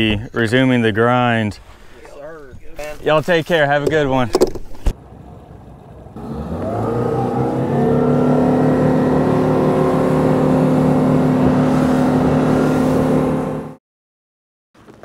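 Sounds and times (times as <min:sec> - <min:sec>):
boat motor: 0:05.0 - 0:13.8.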